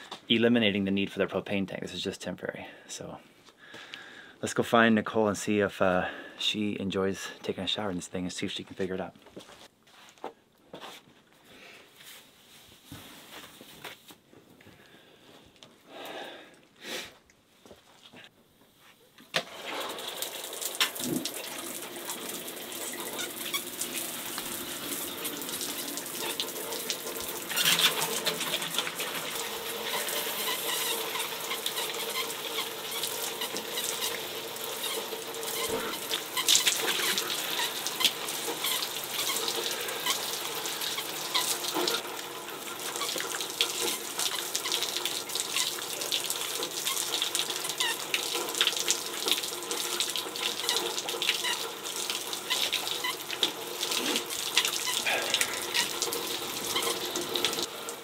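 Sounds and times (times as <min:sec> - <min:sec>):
shower water spraying: 0:19.4 - 0:58.0.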